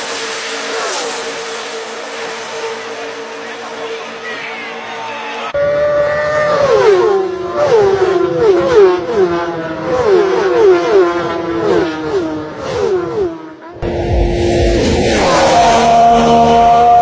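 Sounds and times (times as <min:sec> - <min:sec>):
low engine drone: 0:00.0 - 0:09.9, 0:13.5 - 0:17.0
racing engines revving: 0:00.0 - 0:17.0.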